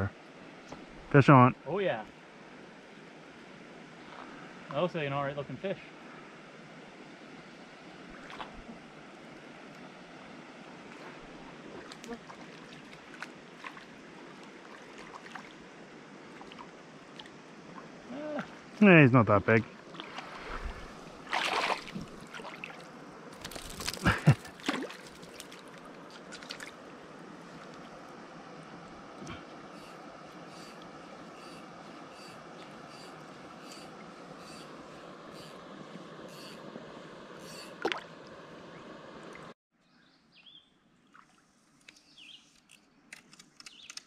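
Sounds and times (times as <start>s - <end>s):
creek water sloshing and trickling: 7.5s - 18.8s, 19.5s - 39.6s, 40.8s - 42.8s
hand splashing in water: 20.0s - 22.8s
faint bird chirps: 29.3s - 35.6s, 36.3s - 36.6s, 37.4s - 37.8s, 39.8s - 40.8s, 41.9s - 42.6s.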